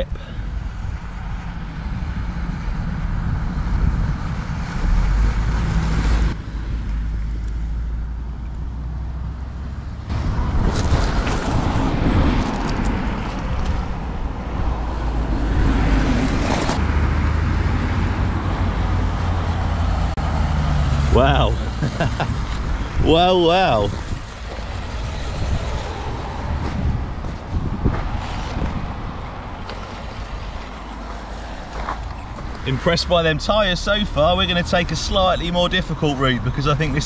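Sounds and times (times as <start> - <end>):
tyres crunching on gravel: 29.6 - 35.0.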